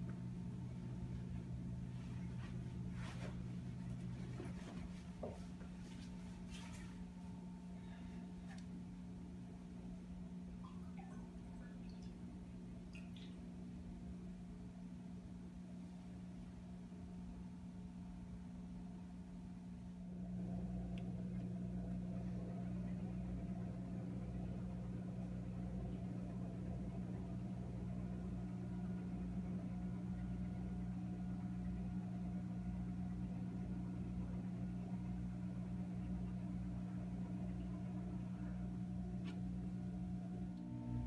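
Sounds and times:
roller shade motor humming: 19.2s - 41.0s.

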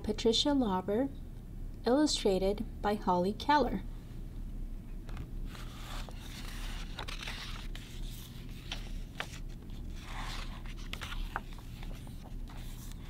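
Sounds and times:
book pages rustling: 5.1s - 13.0s.

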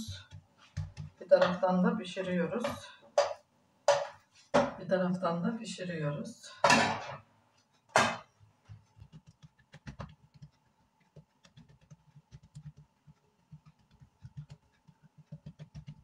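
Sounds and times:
hands patting dough: 0.0s - 1.6s, 8.0s - 16.0s.

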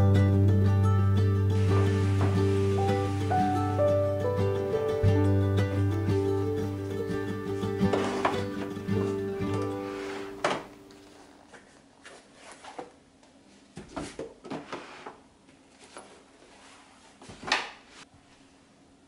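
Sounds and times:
boxes scraping on wooden shelf: 1.6s - 3.9s, 7.8s - 11.2s.

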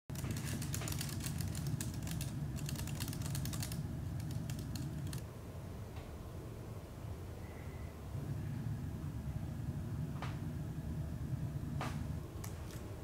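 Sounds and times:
rapid typing on keyboard: 0.1s - 5.2s
low steady hum: 0.1s - 13.0s.

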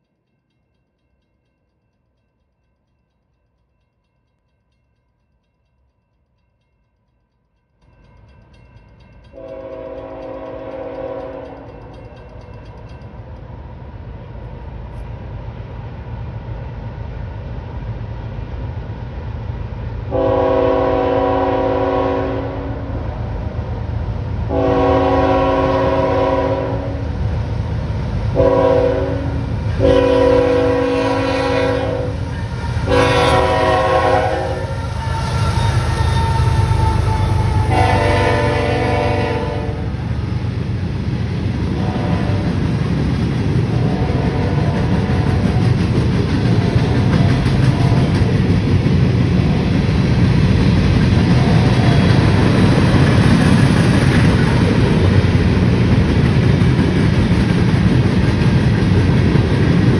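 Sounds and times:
train rumble: 0.0s - 59.9s
train horn blasts: 9.4s - 11.9s, 20.1s - 23.1s, 24.5s - 27.2s, 28.3s - 40.1s, 41.8s - 42.6s, 43.8s - 45.6s.

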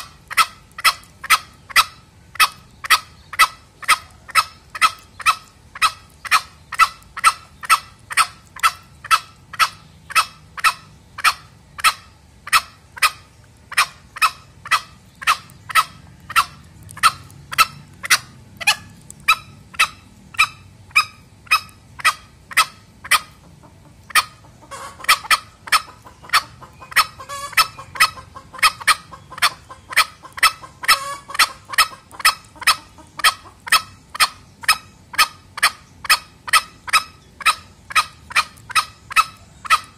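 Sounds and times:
junglefowl clucking calls: 0.0s - 39.9s.

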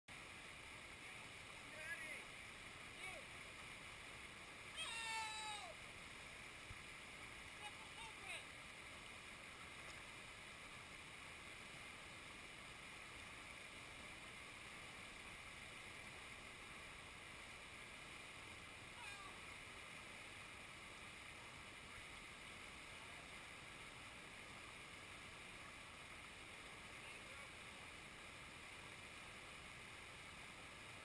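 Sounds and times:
faint click: 9.8s - 10.1s.

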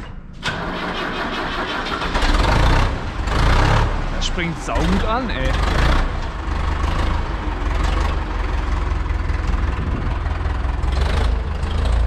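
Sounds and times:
diesel tractor engine idling: 3.9s - 12.0s.

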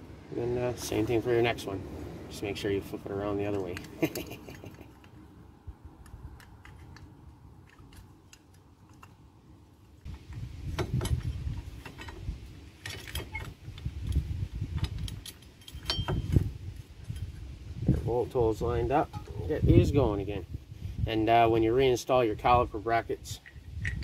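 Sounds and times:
metallic clicks and clinks: 14.8s - 16.4s.

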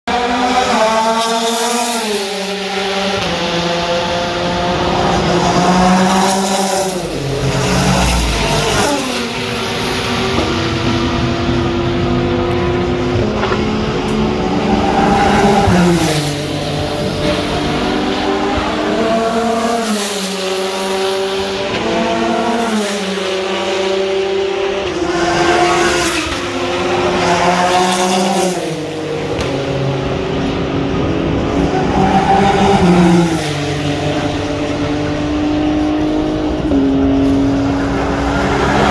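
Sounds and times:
race cars passing: 0.1s - 38.9s.

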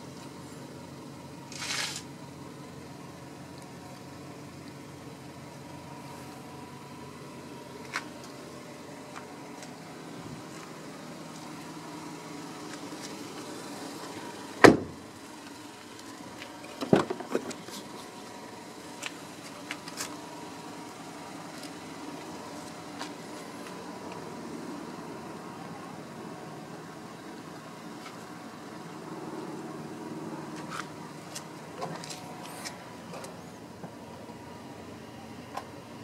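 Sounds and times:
car door thud: 14.6s - 15.0s, 16.8s - 17.6s.

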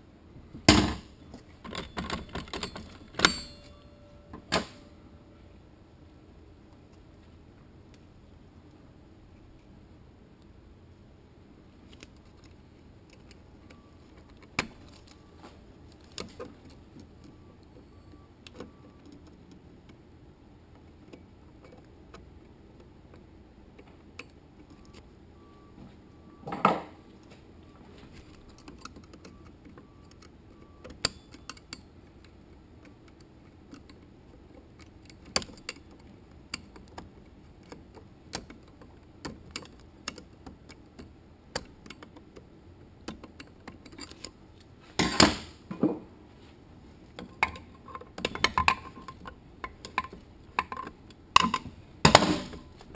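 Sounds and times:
metal tool clicks and clinks: 1.7s - 3.9s.

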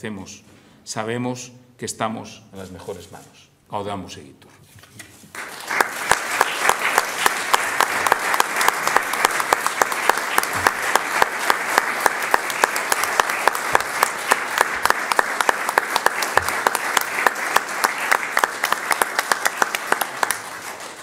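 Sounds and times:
audience applauding: 5.3s - 21.0s.

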